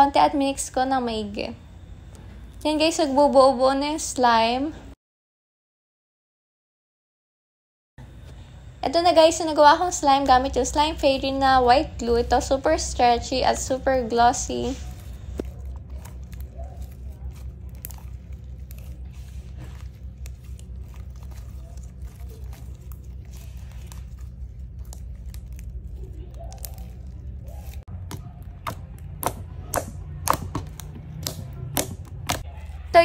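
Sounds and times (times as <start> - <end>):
slime crackling and clicking: 15.4 - 32.4
finger poking slime popping: 28.1 - 32.4.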